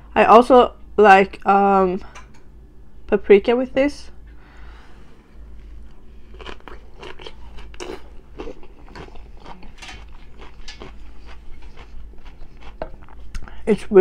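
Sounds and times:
person chewing crisp cucumber: 0:05.9 - 0:13.5.

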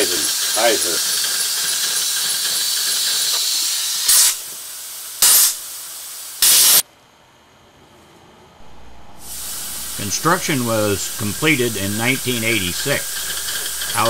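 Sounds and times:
compressed air hissing: 0:01.9 - 0:06.8, 0:09.0 - 0:14.0
short air blasts: 0:03.9 - 0:04.4, 0:05.2 - 0:05.6, 0:06.4 - 0:06.8, 0:08.6 - 0:14.0.

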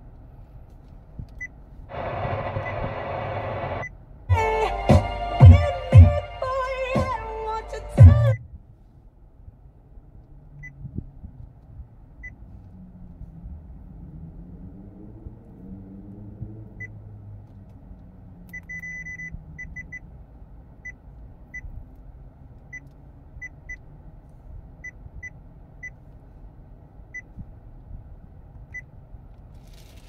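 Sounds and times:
low cabin hum: 0:00.0 - 0:14.1.

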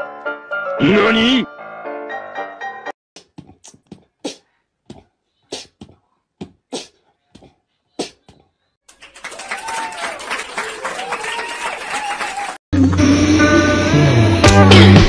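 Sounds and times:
music with voices: 0:12.8 - 0:15.0.

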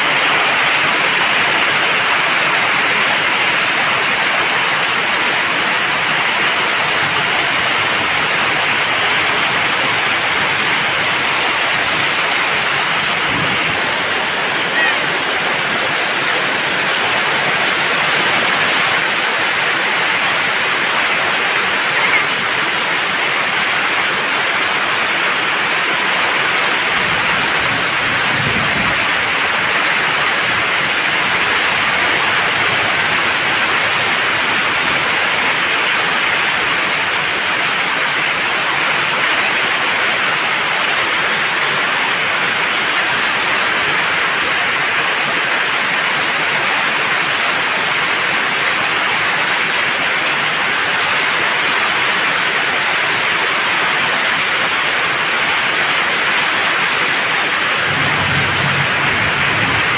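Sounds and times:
heavy rain on flooded pavement: 0:00.0 - 0:59.9.

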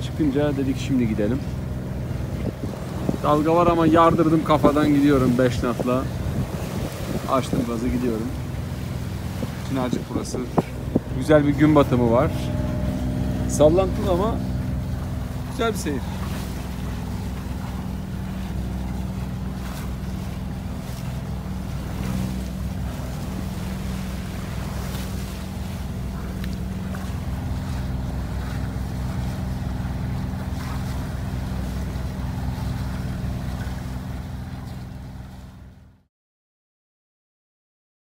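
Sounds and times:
boat engine running: 0:00.0 - 0:36.1
water rushing past hull: 0:00.0 - 0:36.1
wind: 0:00.0 - 0:36.1.

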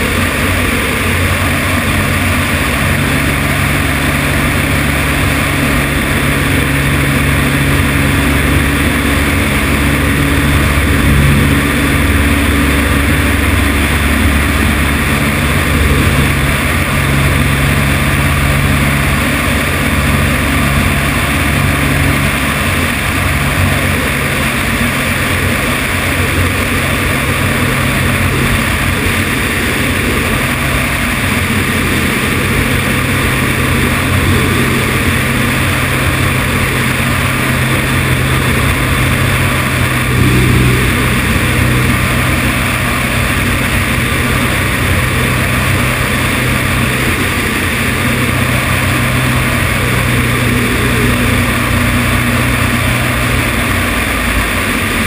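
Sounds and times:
light aircraft engine droning: 0:00.0 - 0:55.0
wind rushing over microphone: 0:00.0 - 0:55.0.

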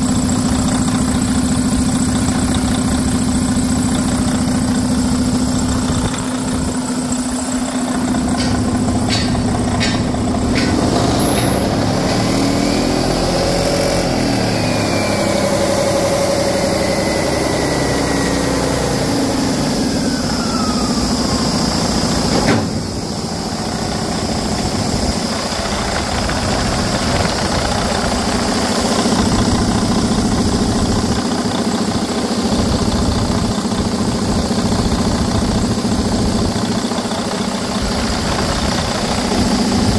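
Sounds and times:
diesel engine idling: 0:00.0 - 0:39.9
thin whistle sliding down: 0:14.4 - 0:22.8.

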